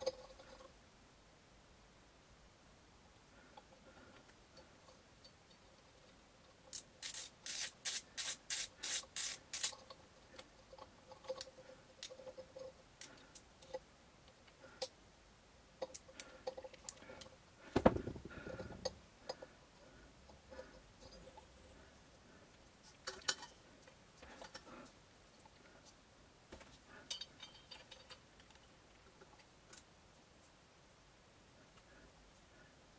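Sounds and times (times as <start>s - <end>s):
heavy knock: 17.8s - 18.3s.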